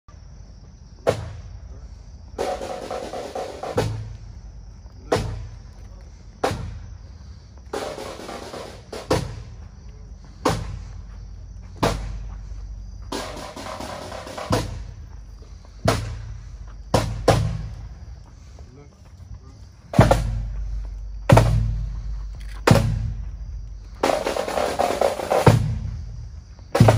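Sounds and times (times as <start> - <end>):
snare drum rolls: 2.4 - 4.1, 13.1 - 14.9, 20.0 - 20.5, 24.0 - 25.9
bass drum strokes: 10.4 - 18.2, 19.9 - 26.9.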